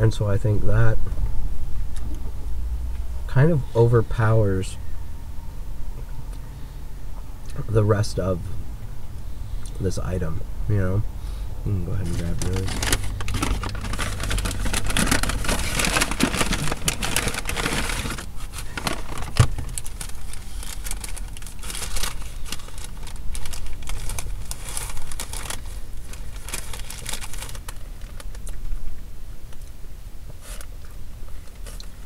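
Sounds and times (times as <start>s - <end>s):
steady low hum: 0.0s - 32.0s
food packaging crinkling: 12.0s - 28.6s.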